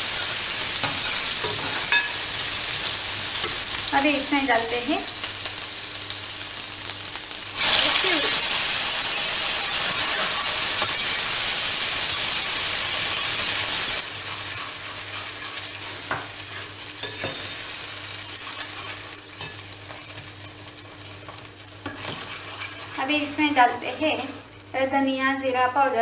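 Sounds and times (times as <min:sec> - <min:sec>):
puree sizzling in hot oil: 0:00.0 - 0:24.8
spoon scraping pan: 0:14.1 - 0:17.6, 0:21.8 - 0:24.5.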